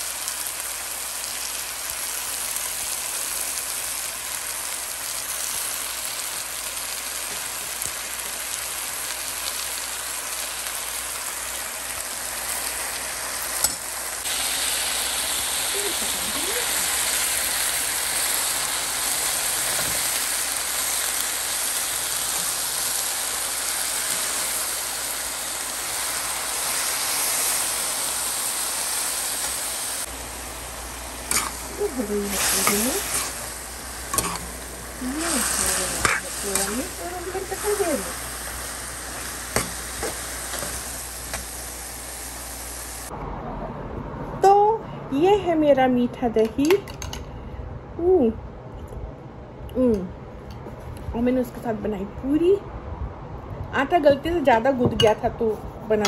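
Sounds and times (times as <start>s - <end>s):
greens sizzling in a pan: 0.0s - 43.1s.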